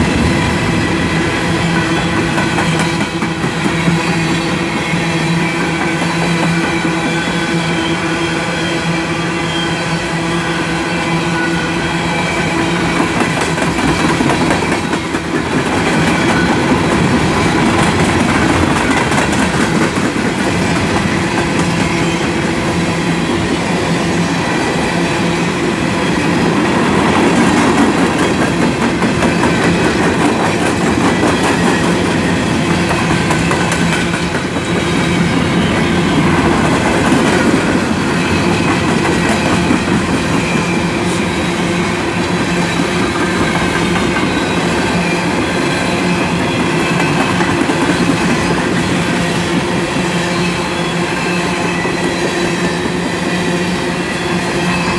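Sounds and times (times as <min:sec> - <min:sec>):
train wheels rumbling on rail: 0:00.0 - 0:54.9.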